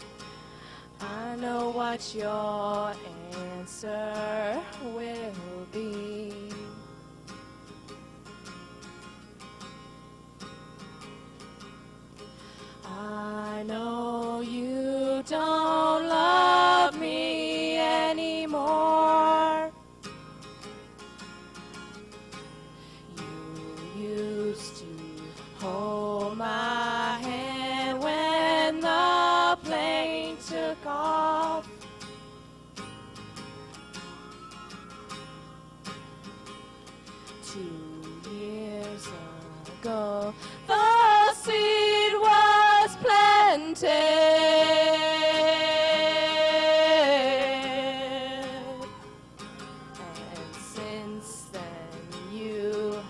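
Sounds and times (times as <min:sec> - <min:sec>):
acoustic guitar: 0:00.0 - 0:53.0
young women singing: 0:01.0 - 0:06.8, 0:12.8 - 0:19.8, 0:23.1 - 0:31.7, 0:37.4 - 0:49.1, 0:49.8 - 0:53.0
woman singing long note: 0:49.9 - 0:53.0.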